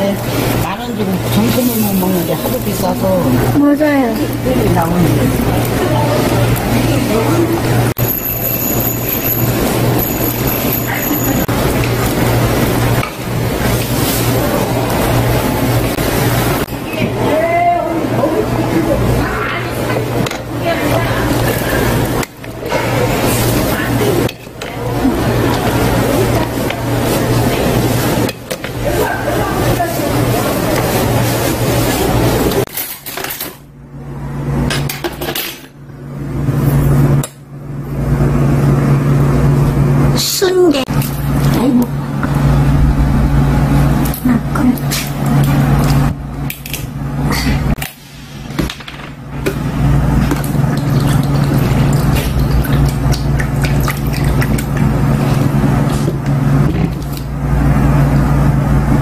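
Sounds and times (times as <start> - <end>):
low mechanical hum: 0.0 - 59.0
wash of noise: 4.3 - 32.6, 49.6 - 59.0
steady low hum: 33.6 - 59.0.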